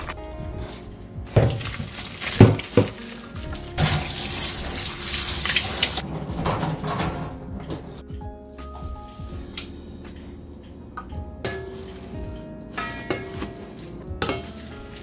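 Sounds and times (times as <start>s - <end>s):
water running into sink: 1.4s - 6.1s
kitchenware knocking: 6.0s - 7.9s.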